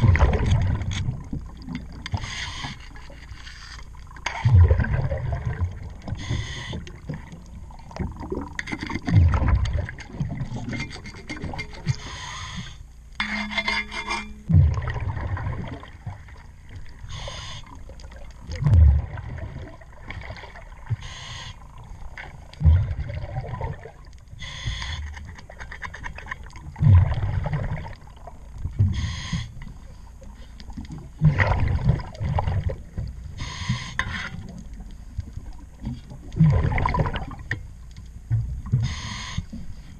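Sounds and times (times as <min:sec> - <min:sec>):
exhaust bubbles rumbling: 0:00.0 - 0:02.0, 0:04.2 - 0:10.8, 0:14.5 - 0:17.1, 0:17.8 - 0:21.0, 0:21.7 - 0:24.2, 0:26.6 - 0:29.0, 0:30.9 - 0:33.3, 0:34.9 - 0:38.9
rubbing and scraping on hull: 0:02.1 - 0:04.4, 0:08.4 - 0:14.5
regulator hiss on inhale: 0:02.2 - 0:02.9, 0:06.2 - 0:06.9, 0:12.0 - 0:12.9, 0:17.1 - 0:17.8, 0:21.0 - 0:21.6, 0:24.4 - 0:25.2, 0:28.9 - 0:29.6, 0:33.4 - 0:34.0, 0:38.8 - 0:39.9.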